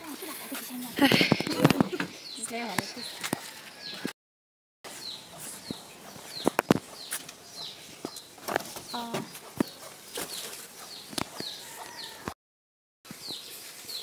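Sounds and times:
bird chirps: 4.9 - 12.2.

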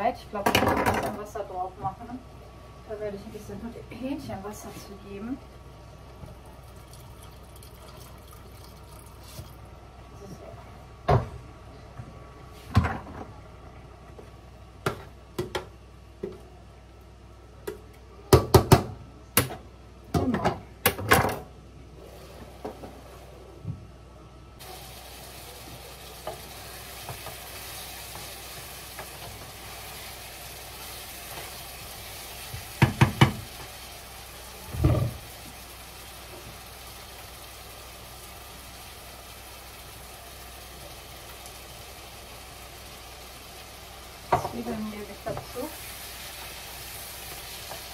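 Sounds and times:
onions sizzling in a pan: 24.6 - 47.9
wooden spoon knocking on pan: 32.5 - 33.7, 44.3 - 44.6.

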